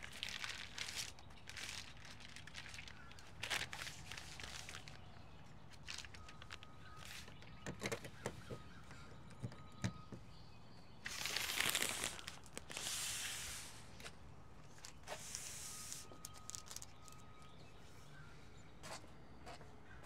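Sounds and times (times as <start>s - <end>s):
small clicks and knocks: 5.9s - 10.2s.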